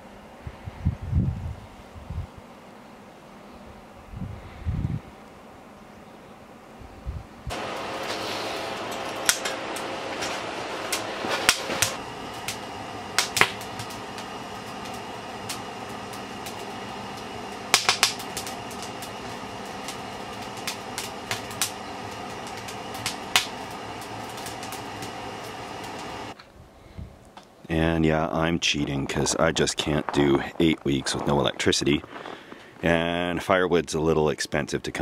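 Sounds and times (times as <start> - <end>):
fan-like whir: 0.0 - 35.0
wood fire crackling and popping: 7.5 - 26.4, 27.2 - 33.4.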